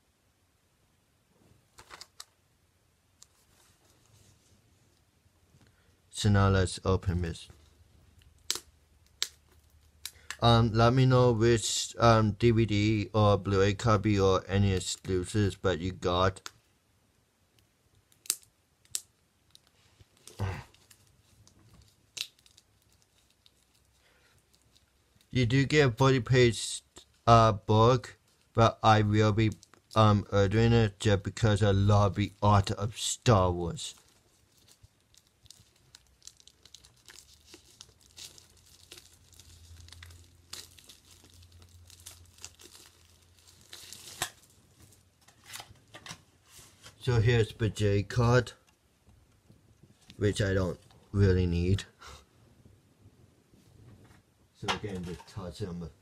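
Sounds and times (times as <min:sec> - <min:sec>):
packaging crinkling and rustling: 0:01.7 - 0:02.4, 0:18.2 - 0:25.3, 0:29.4 - 0:30.0, 0:33.7 - 0:47.1
rustling scrape: 0:46.4 - 0:47.0.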